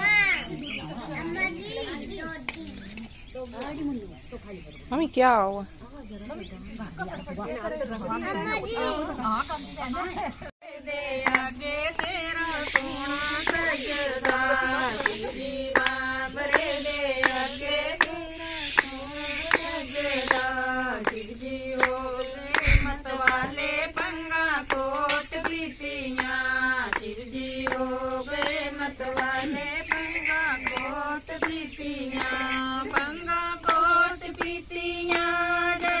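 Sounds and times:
women singing devotional song: 9.9 - 36.0
hand claps: 11.2 - 36.0.

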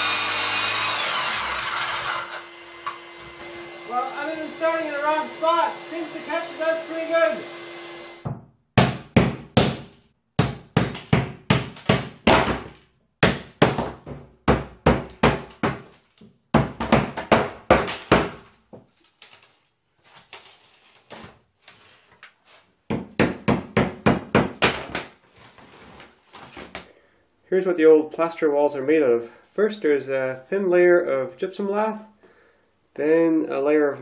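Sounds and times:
sharp blows knocking plaster: 8.2 - 15.9, 16.5 - 18.5.

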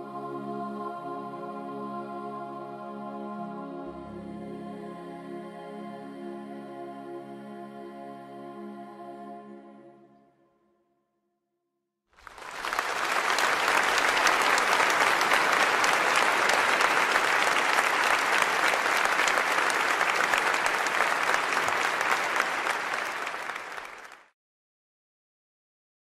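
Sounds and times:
crowd applauding: 12.2 - 24.3.

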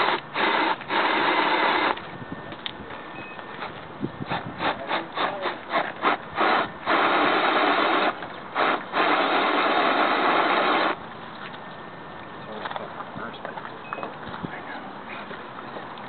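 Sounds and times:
electric motor and drivetrain whirring: 0.0 - 11.9.

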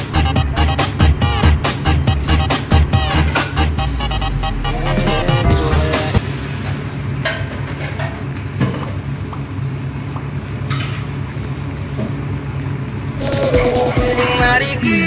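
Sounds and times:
steady low hum: 1.2 - 7.8.

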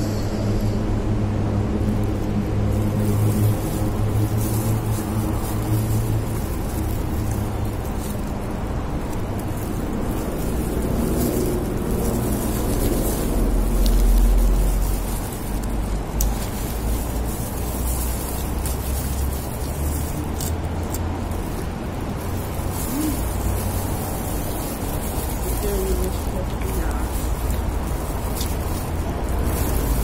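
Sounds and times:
low background rumble: 0.0 - 30.0.

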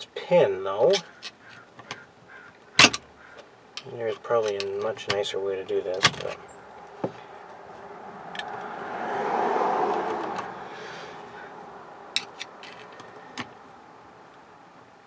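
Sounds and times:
screwdriver clicking and scraping metal: 12.2 - 13.1.

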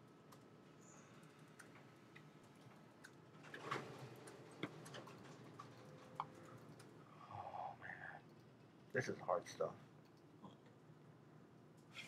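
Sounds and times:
faint clicks: 0.1 - 3.2.

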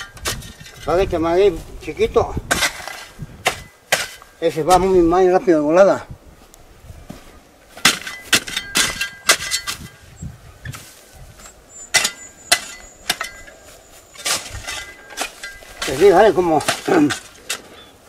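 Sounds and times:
metal hoe striking hard soil: 0.0 - 1.1, 2.4 - 4.9, 7.7 - 10.0, 10.7 - 17.8.

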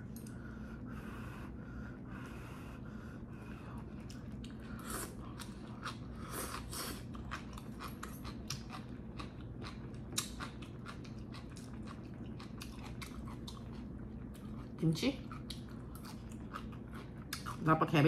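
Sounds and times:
chewing with wet mouth clicks: 3.8 - 17.6.

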